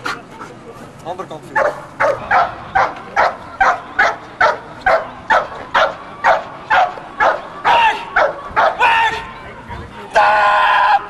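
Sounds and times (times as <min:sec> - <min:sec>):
dog barking: 0:01.6 - 0:08.8.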